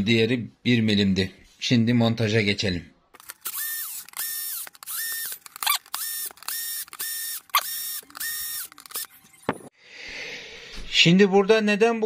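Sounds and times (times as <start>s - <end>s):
sharp clicks: 3.2s - 9.1s
drill motor whine bursts: 3.5s - 9.1s.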